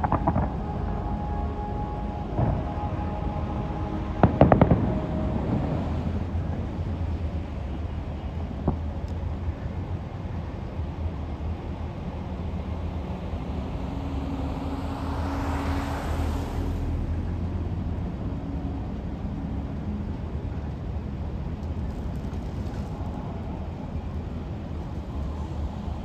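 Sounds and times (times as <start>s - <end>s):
engine running: 0.0s - 26.0s
road traffic hum: 0.0s - 26.0s
vehicle passing whoosh: 13.0s - 18.8s.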